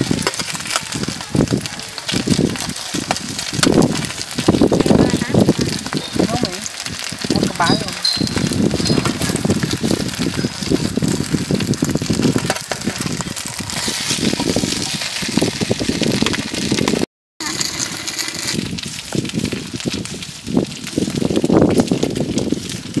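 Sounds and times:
voices: 0.0 - 9.4
rice cakes frying on a griddle: 0.0 - 23.0.

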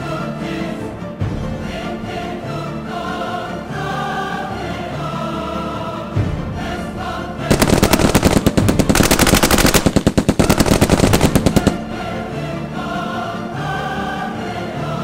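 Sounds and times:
choral music: 0.0 - 15.0
rapid machine-gun fire: 7.5 - 12.1.

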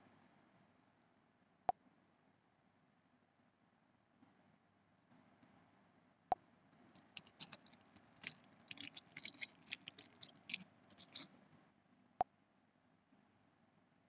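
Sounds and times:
light quick clicks and taps: 6.8 - 11.3.

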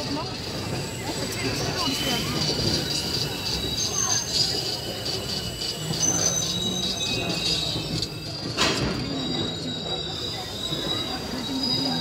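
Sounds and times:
train rumbling: 0.0 - 12.0
train wheel squeal: 0.0 - 12.0.

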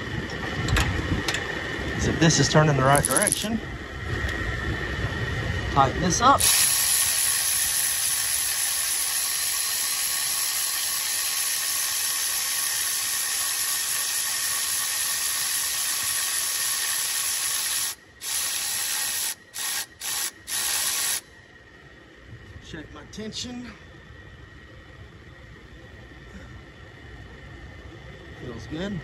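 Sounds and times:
aerosol can spraying: 6.4 - 21.2.

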